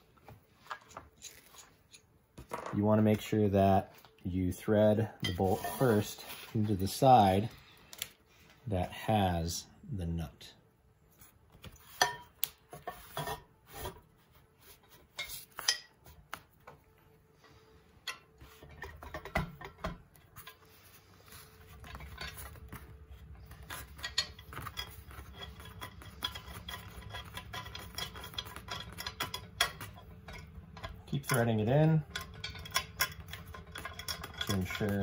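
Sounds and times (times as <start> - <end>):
metal clinks and knocks: 18.1 - 20.7, 21.6 - 35.0.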